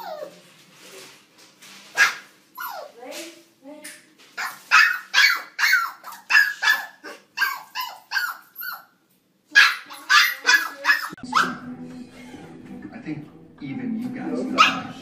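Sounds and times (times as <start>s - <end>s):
puppy yapping: 2.0s - 3.0s, 4.4s - 11.6s, 14.6s - 15.0s.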